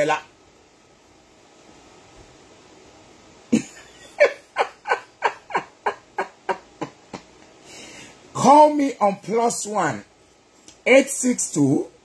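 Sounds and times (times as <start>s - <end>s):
man laughing: 3.5s - 7.6s.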